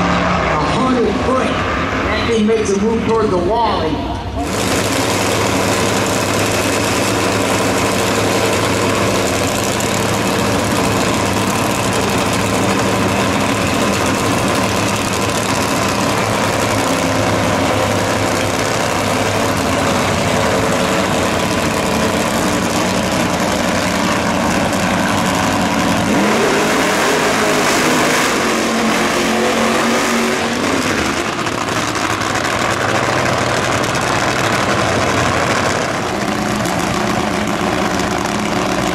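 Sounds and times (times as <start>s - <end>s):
supercharged car engines idling: 0.0s - 38.9s.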